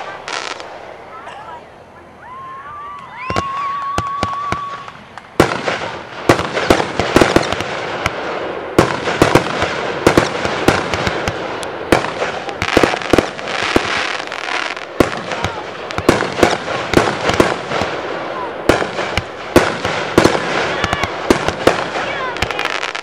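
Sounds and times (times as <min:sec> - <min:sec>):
continuous firework hiss: 0:00.0 - 0:23.0
firework whistle: 0:02.3 - 0:05.0
firework aerial bursts banging: 0:03.1 - 0:23.0.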